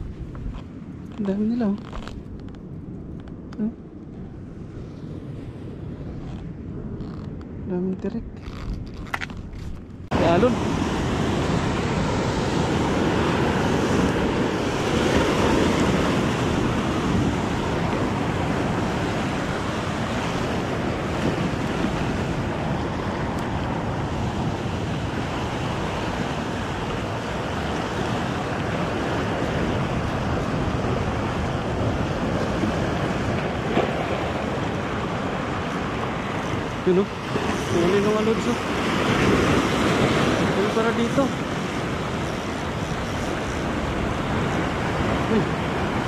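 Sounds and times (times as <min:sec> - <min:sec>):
wind buffeting microphone: 0:00.0 - 0:46.0
surf breaking on rocky shore: 0:09.5 - 0:46.0.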